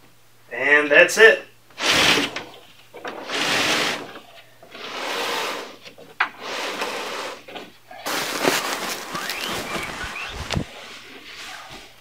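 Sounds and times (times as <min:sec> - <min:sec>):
bed frame scraping across carpet: 0:06.4 - 0:12.0.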